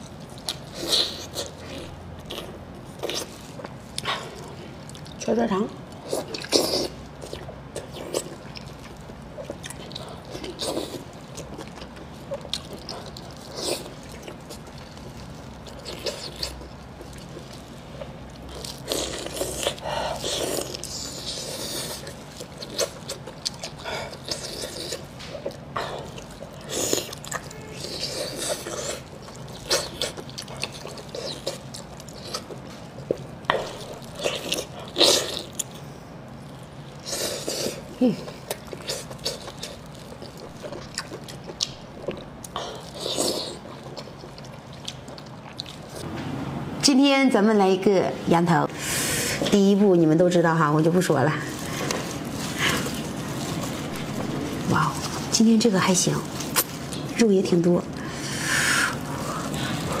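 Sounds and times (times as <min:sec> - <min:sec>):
wet chewing: 0:05.9 - 0:46.1, 0:50.4 - 1:00.0.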